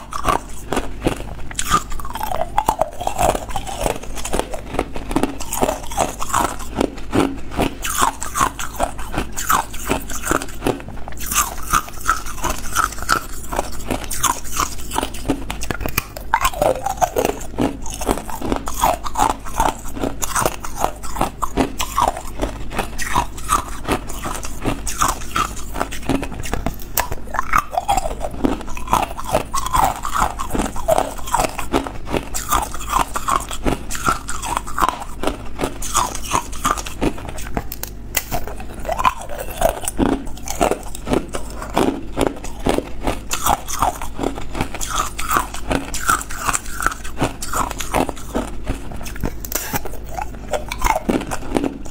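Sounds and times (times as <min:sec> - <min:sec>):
ice cubes crunching: 0:00.0 - 0:51.9.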